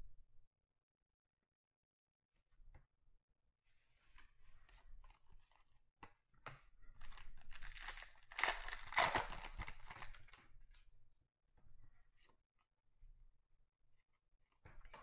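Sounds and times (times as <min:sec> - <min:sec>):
cards rustling and clicking: 0:07.0 - 0:10.4
foil wrapper tearing and crinkling: 0:07.0 - 0:10.4.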